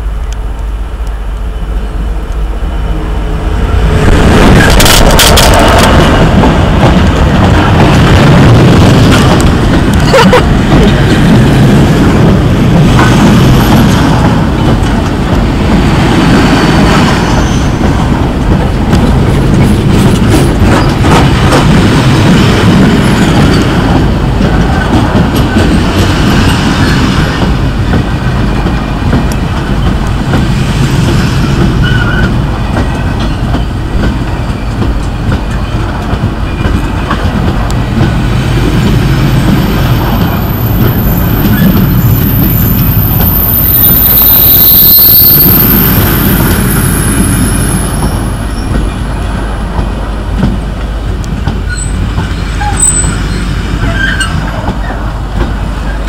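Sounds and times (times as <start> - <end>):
train wheels rumbling and clattering: 0.0 - 56.0
high-pitched wheel squeal: 31.8 - 32.3, 51.7 - 54.4.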